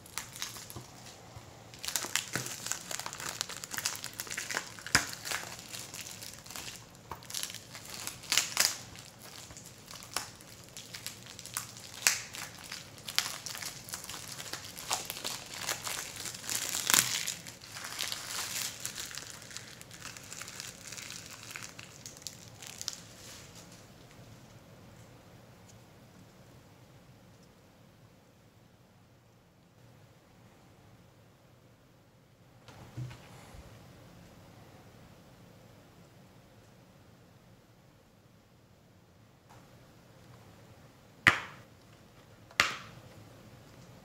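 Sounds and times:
cellophane snapping: 0.0 - 23.8
cellophane crinkling and crackling: 0.0 - 24.5.

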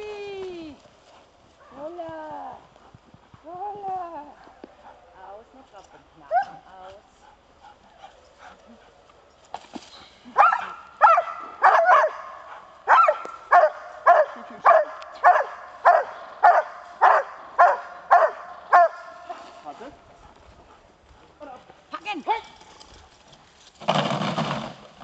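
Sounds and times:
dog barking rhythmically: 10.4 - 19.2.

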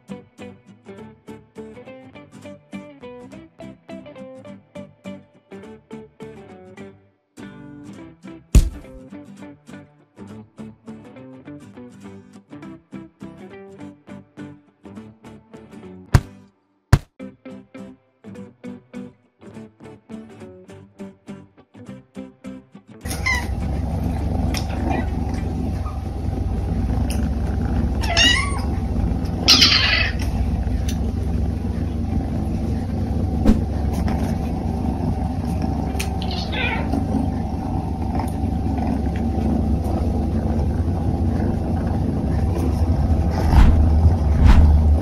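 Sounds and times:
kittens meowing: 23.1 - 23.7, 24.4 - 26.0, 27.8 - 31.2, 35.9 - 37.4
low rumble: 23.1 - 45.0.

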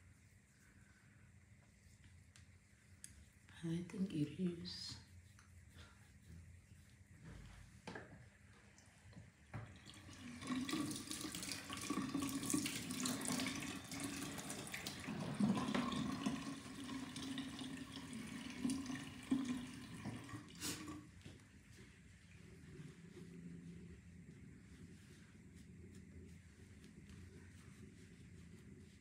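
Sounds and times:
tap water running into sink: 9.5 - 21.0.

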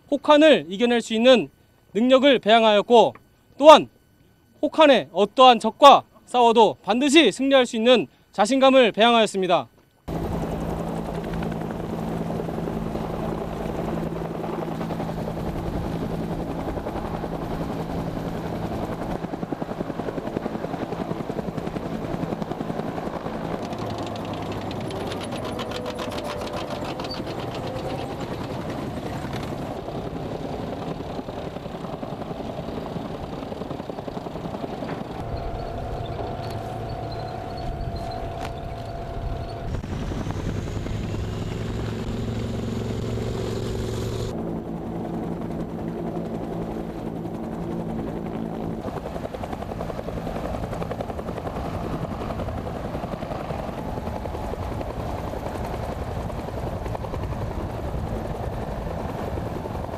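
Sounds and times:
helicopter rotor beat: 0.0 - 59.9
armoured vehicle engines: 10.1 - 50.8.

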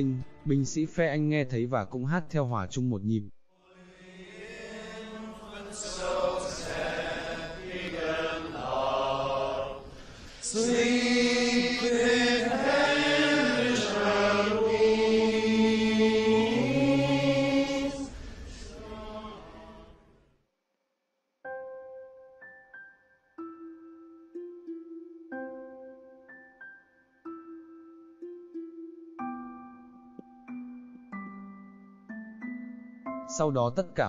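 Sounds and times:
men singing a carol: 3.6 - 19.9.

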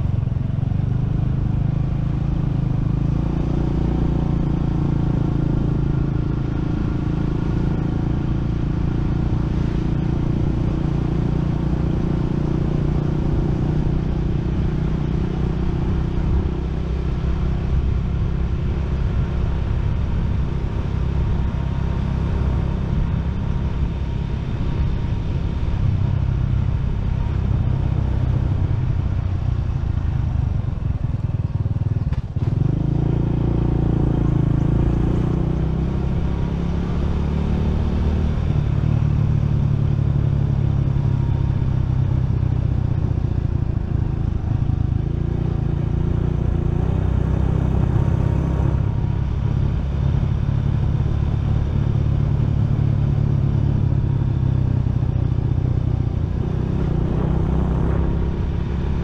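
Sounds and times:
motorcycle engine running: 0.0 - 59.0
road and wind noise: 0.0 - 59.0.

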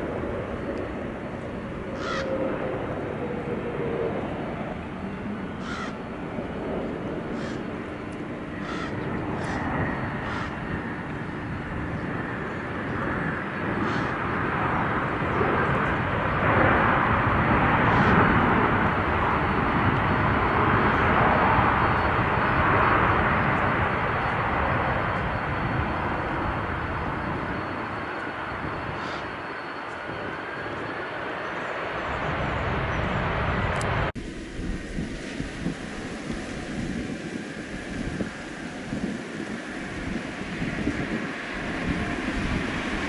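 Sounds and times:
jet engine rushing: 0.0 - 43.0
bird calls: 2.0 - 2.3, 5.6 - 6.0, 7.3 - 7.7, 8.6 - 10.6, 13.6 - 14.2, 28.9 - 30.0.

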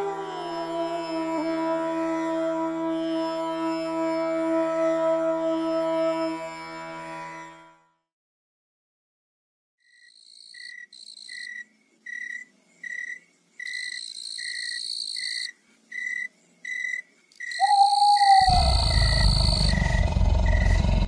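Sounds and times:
shrill insect chirping: 9.8 - 20.8
crickets chirping: 9.9 - 21.0
low tone: 17.6 - 21.0.

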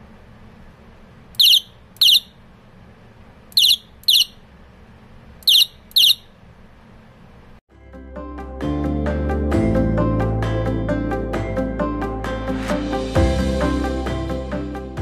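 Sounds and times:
bicycle electronic horn beeps: 1.4 - 2.4, 3.5 - 4.4, 5.4 - 6.3.

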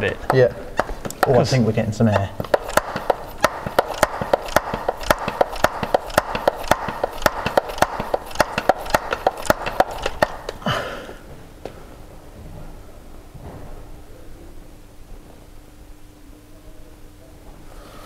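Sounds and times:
hand pump clicking: 2.0 - 10.6.

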